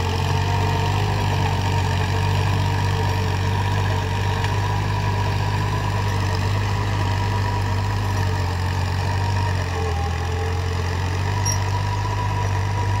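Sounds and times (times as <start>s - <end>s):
tractor engine running under load: 0.0s - 13.0s.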